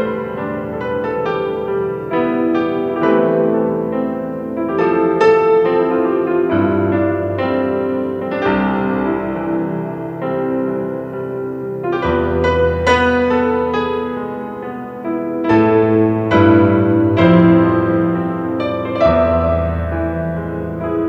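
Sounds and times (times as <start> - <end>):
piano chords: 0.0 - 21.0.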